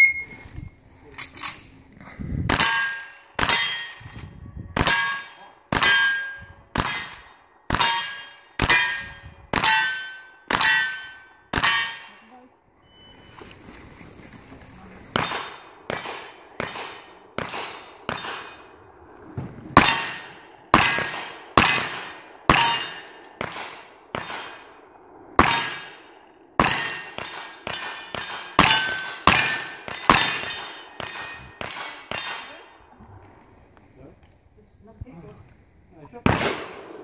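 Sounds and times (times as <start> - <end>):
ringing clang of struck steel: 4.9 - 7.2
gunshots: 15.1 - 18.7, 19.8 - 24.8, 25.4 - 32.6, 36.2 - 37.0.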